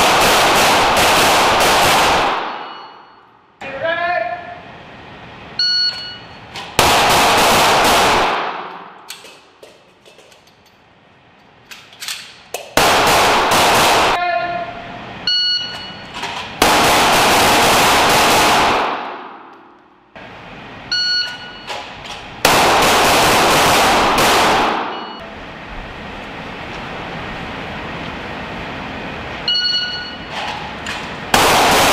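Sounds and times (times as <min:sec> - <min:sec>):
pistol rapid shots echoing indoors: 0:00.0 - 0:03.3, 0:06.6 - 0:09.3, 0:12.3 - 0:14.2, 0:16.6 - 0:20.1, 0:22.4 - 0:25.2, 0:31.3 - 0:31.9.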